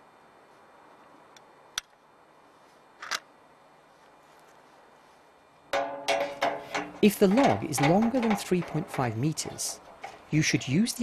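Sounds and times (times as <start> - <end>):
faint hiss: 0.0 - 5.7
metal clatter: 5.8 - 11.0
rack clicks: 5.8 - 11.0.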